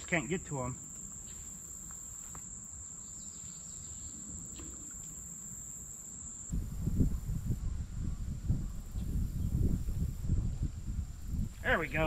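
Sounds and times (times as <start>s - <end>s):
insects singing: 0.0s - 8.0s, 11.0s - 12.0s
wind buffeting microphone: 6.5s - 12.0s.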